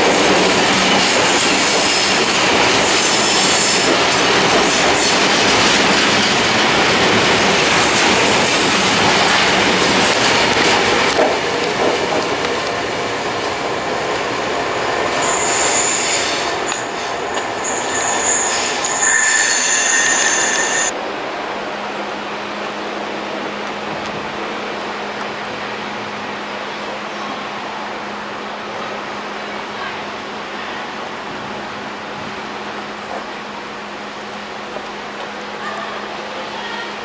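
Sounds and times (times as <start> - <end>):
freight train wheels clattering: 0.0 - 20.9
high-pitched wheel squeal: 17.6 - 20.9.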